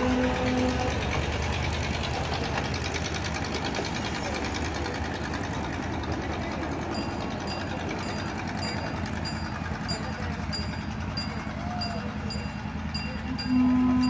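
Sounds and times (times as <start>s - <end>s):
train horn toot: 0.0s - 1.2s, 13.3s - 14.0s
train wheels rumbling on rail: 0.0s - 14.0s.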